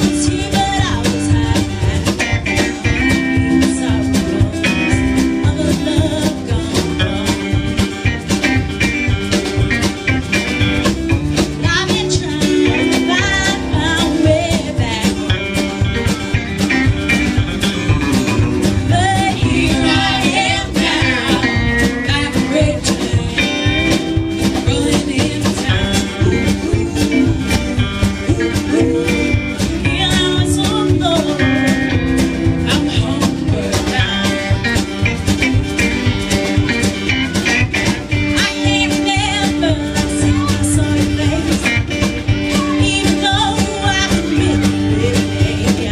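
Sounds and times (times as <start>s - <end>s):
woman singing: 0.0s - 8.2s, 11.4s - 15.8s, 18.6s - 35.1s, 38.3s - 45.9s
acoustic guitar: 0.0s - 45.9s
drums: 0.0s - 45.9s
electric guitar: 0.0s - 45.9s
upright bass: 0.0s - 45.9s.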